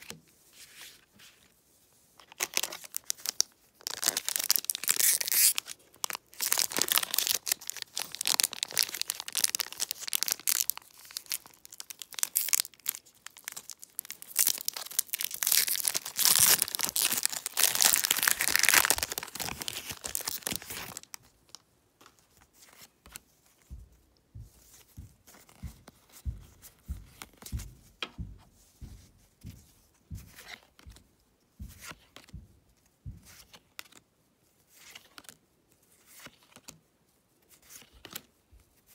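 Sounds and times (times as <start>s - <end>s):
foil wrapper tearing and crinkling: 2.3s - 21.2s.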